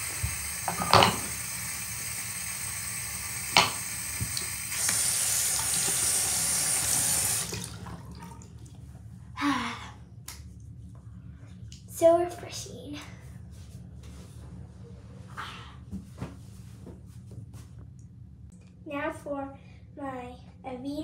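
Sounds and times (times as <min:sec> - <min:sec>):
tap water splashing: 0:00.2 - 0:01.4, 0:03.4 - 0:06.2, 0:06.8 - 0:08.5.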